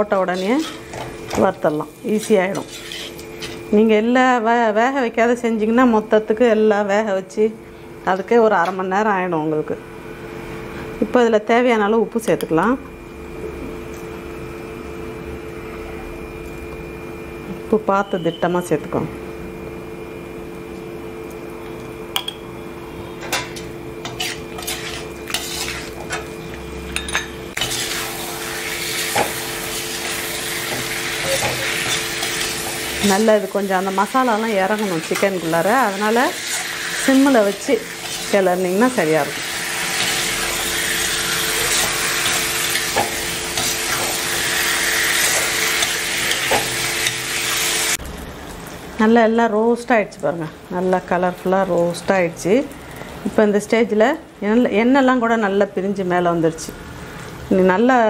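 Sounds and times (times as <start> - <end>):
chicken sizzling in oil: 0.2 - 3.7, 23.7 - 26.9, 27.6 - 48.7
ladle scraping and clinking on pan: 0.4 - 1.4, 2.1 - 3.6, 23.3 - 26.2.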